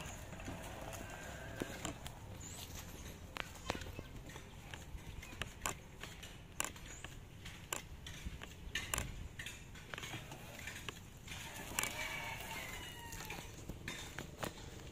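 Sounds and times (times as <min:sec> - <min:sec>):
sharp clicks: 0:00.0 - 0:12.0
rooster crowing: 0:11.4 - 0:13.6.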